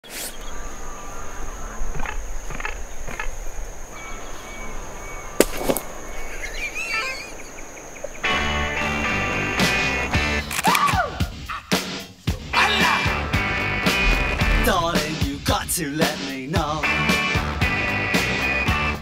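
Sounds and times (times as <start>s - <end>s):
warbling bird call: 0.0s - 11.7s
high insect trill: 0.1s - 16.8s
campfire crackling and popping: 5.3s - 6.5s, 13.4s - 15.8s.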